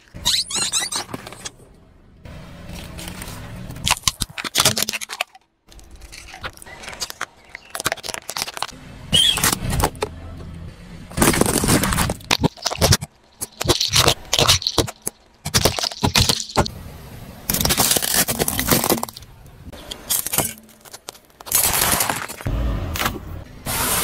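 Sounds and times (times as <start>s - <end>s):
plastic toys cracking under tyre: 3.8s - 10.1s, 11.1s - 16.7s, 17.5s - 22.5s
grit scraping under tyre: 19.8s - 22.5s.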